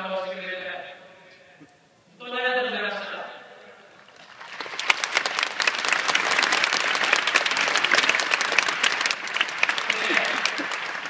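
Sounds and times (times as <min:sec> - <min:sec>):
large crowd applauding: 0:04.0 - 0:11.0
sharp nearby claps: 0:04.1 - 0:11.0.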